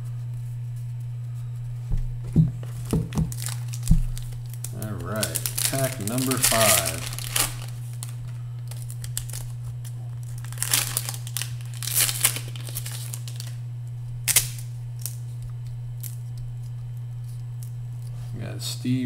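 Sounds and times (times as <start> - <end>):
steady low hum: 0.0 - 19.0
foil wrapper tearing and crinkling: 2.6 - 13.6, 14.2 - 15.4.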